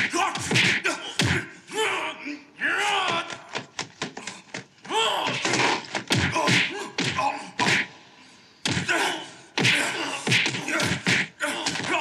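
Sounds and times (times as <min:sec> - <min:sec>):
grunts: 0:08.8 - 0:12.0
punch hits: 0:09.6 - 0:12.0.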